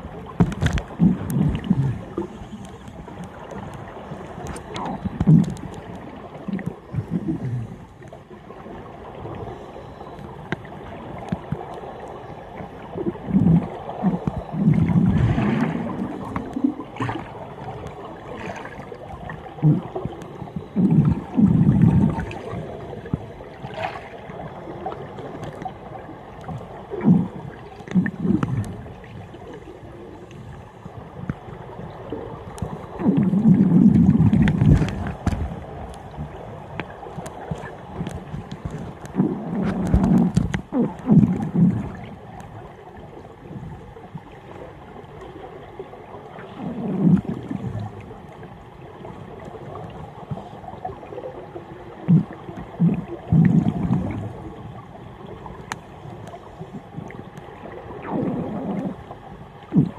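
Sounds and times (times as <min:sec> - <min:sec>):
underwater exhaust bubbles gurgling: 0:00.0 - 0:59.9.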